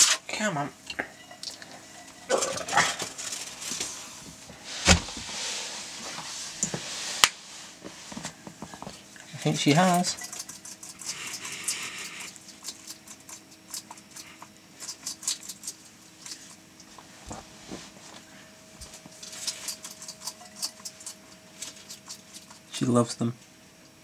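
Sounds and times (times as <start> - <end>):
lizard crunching insects: 8.7 - 17.1, 18.7 - 22.8.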